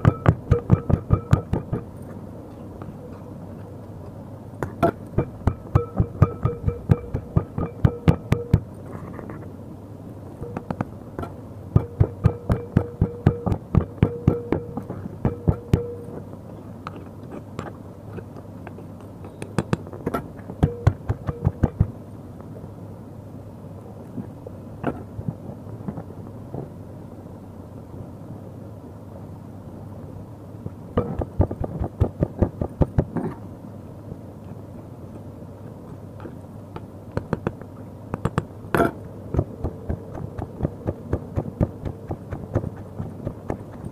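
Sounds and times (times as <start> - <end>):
stone pestle pounding in mortar: 0.0 - 1.9, 5.2 - 8.7, 11.8 - 16.0.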